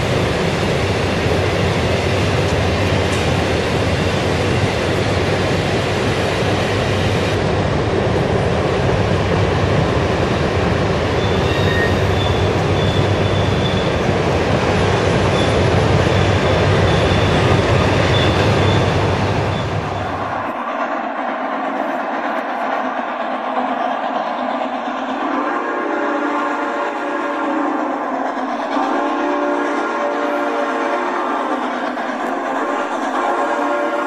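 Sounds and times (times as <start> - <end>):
model train wheels rumbling on track: 0.0 - 34.0
faint high squeal: 11.2 - 13.9.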